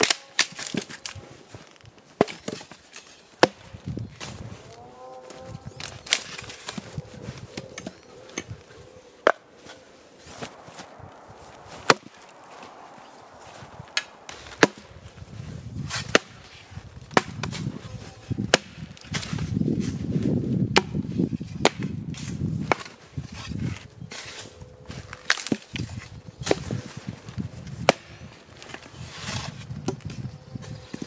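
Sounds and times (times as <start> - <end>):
axe chopping firewood: 0.0 - 1.2, 2.2 - 4.4, 11.7 - 12.8, 13.5 - 17.8, 18.5 - 19.5, 20.7 - 22.0, 22.6 - 23.5, 25.0 - 30.2
low rumbling noise: 4.3 - 17.1.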